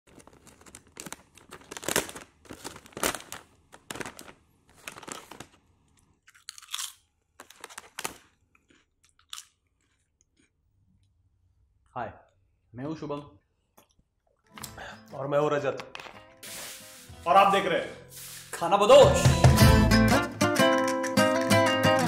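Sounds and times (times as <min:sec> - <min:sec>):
crisps crunching in a tube: 0:00.1 - 0:05.6, 0:06.3 - 0:10.5.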